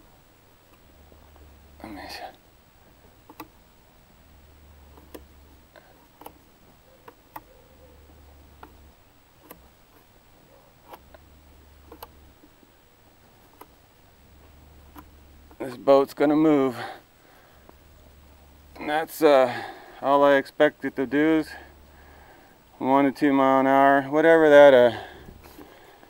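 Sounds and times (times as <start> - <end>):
electric motor hum: 0.0 - 19.3.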